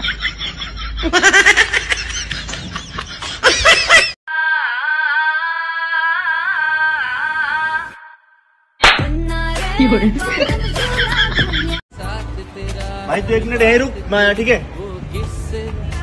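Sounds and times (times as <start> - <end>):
loud laughter: 0.0 - 4.2, 9.8 - 11.8.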